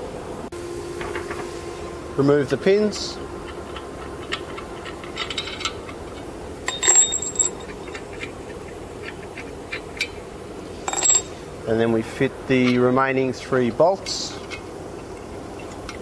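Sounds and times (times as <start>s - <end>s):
metal pins clinking: 3.7s - 11.4s.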